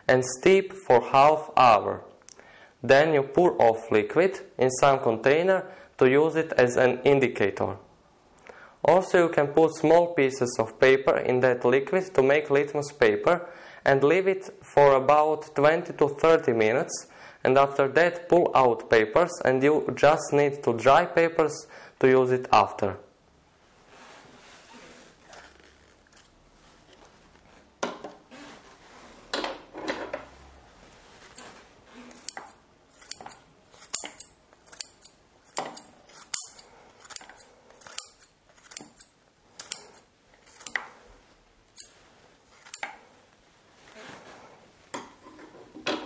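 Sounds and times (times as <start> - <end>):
scissors snipping cabbage: 32.1 - 40.8, 42.5 - 42.9.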